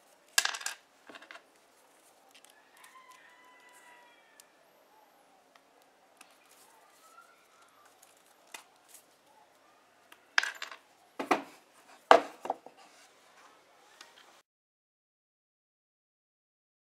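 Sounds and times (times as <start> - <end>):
pliers knocking on plywood: 11.2 - 11.5, 12.1 - 12.6.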